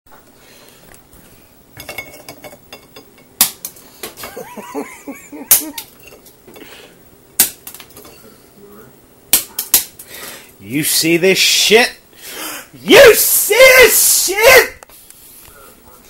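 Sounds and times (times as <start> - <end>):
person speaking: 12.7 - 14.8.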